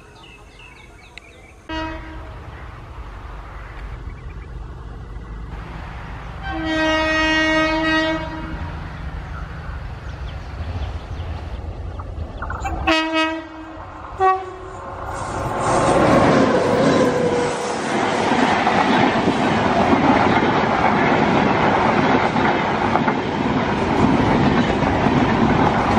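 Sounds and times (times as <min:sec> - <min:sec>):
train rumble passing: 0:00.0 - 0:25.9
locomotive horn blasts: 0:01.7 - 0:02.4, 0:06.4 - 0:08.7, 0:12.8 - 0:14.8.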